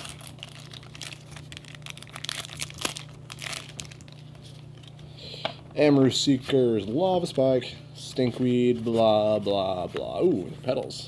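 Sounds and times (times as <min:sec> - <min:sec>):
foil wrapper crinkling and tearing: 0:00.0 - 0:05.0
steady low hum: 0:00.0 - 0:11.0.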